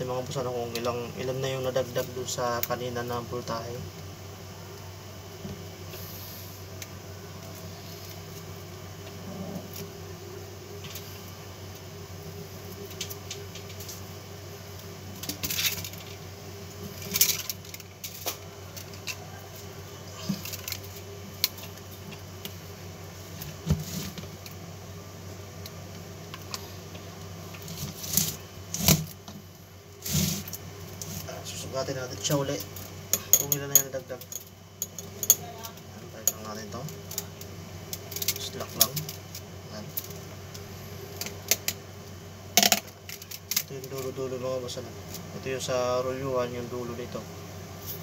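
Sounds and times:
steady low hum: 0.0s - 48.0s
wire clinking and scraping on coil: 15.2s - 16.2s, 16.8s - 22.6s, 25.6s - 29.2s, 30.0s - 40.6s.

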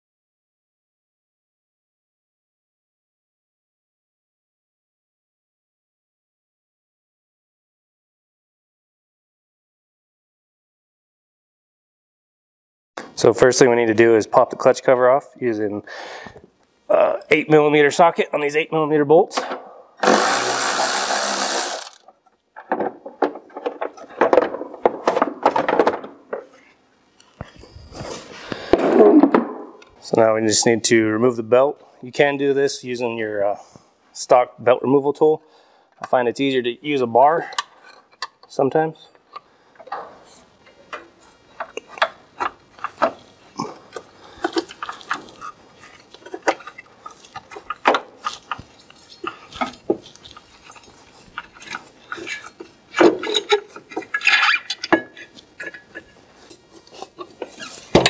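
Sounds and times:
cordless ratchet whirring: 20.0s - 22.0s.

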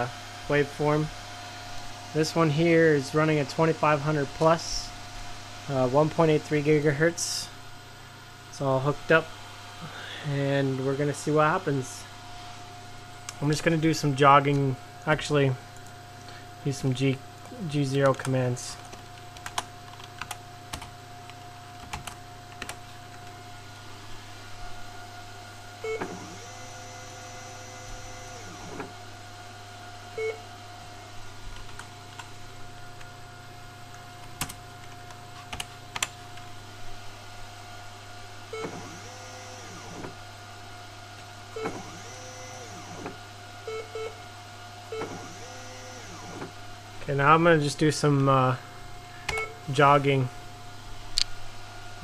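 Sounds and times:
steady electrical hum: 0.0s - 52.0s
stepper motors whining: 23.1s - 29.4s, 38.5s - 40.4s, 41.5s - 44.2s, 44.8s - 48.1s.

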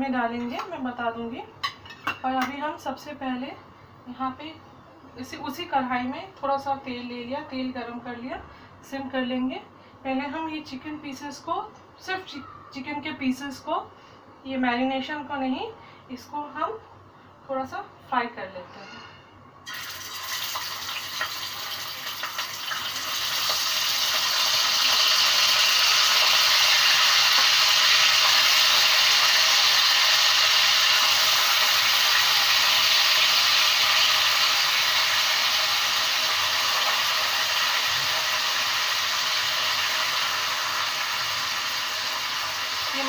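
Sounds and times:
chicken sizzling in hot oil: 19.6s - 43.0s.

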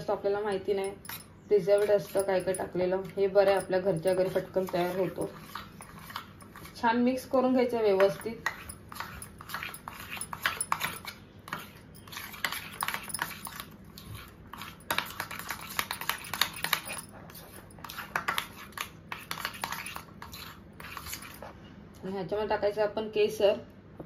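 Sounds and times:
scraping in steel bowl: 0.8s - 2.7s, 8.0s - 21.6s.

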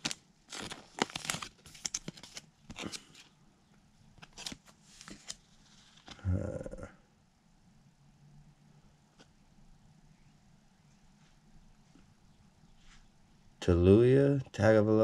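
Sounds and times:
trading cards flipping: 0.0s - 3.4s, 4.2s - 6.2s.

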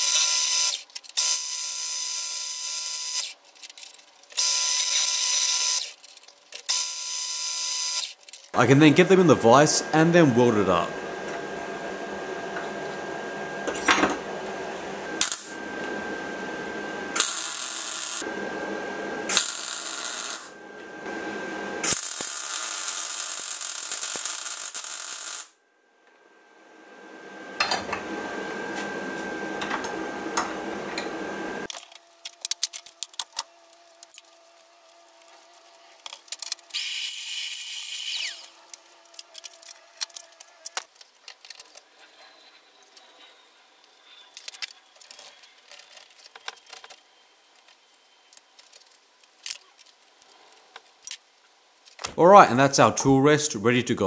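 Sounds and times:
arc welding crackling hiss: 0.0s - 9.4s, 15.2s - 15.6s, 17.1s - 18.3s, 19.3s - 20.5s, 21.8s - 25.6s, 31.6s - 42.1s.

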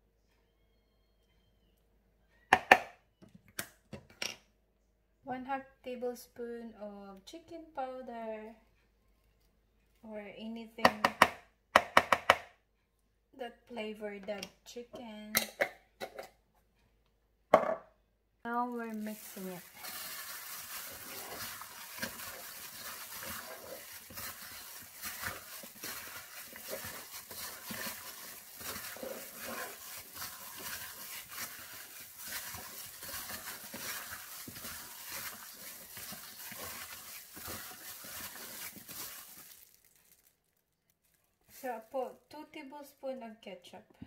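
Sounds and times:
plastic glove crinkling: 18.5s - 42.4s
raw meat squishing: 18.7s - 41.8s.

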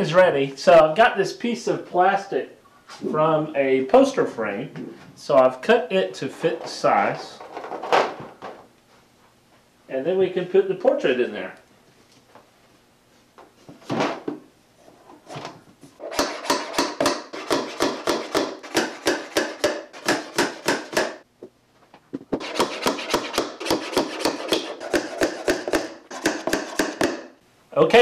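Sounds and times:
hammer tapping nails: 16.1s - 21.2s, 22.4s - 27.4s.

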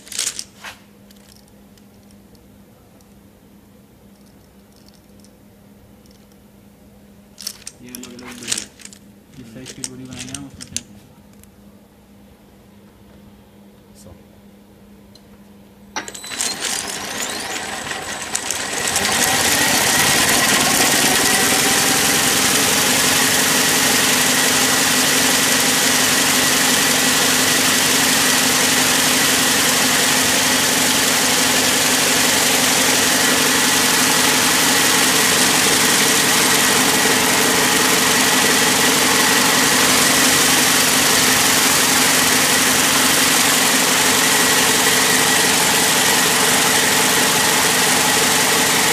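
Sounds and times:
braiding machine clattering and whining: 16.0s - 48.9s.

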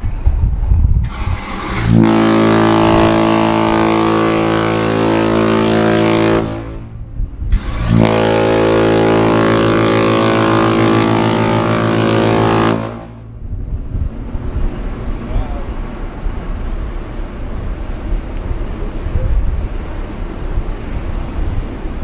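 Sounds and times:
deep ship's horn blasts: 1.0s - 18.1s.

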